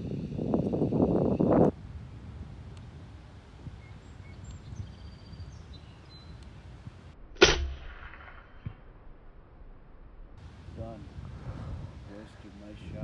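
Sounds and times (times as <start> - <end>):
air rifle shot: 7.4 - 8.5.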